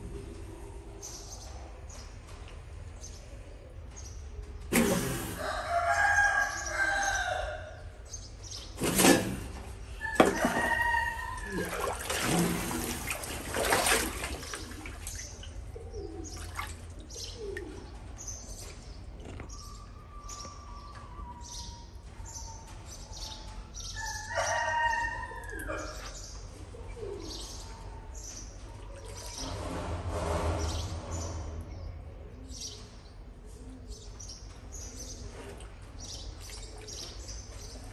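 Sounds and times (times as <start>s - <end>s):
rooster-like crowing: 5.3s - 7.7s, 10.0s - 12.0s, 24.0s - 26.1s.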